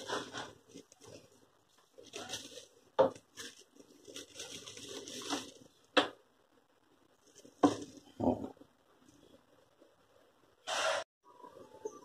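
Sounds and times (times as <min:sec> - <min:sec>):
plastic packaging rustling: 0:00.0 - 0:06.2, 0:07.2 - 0:08.1.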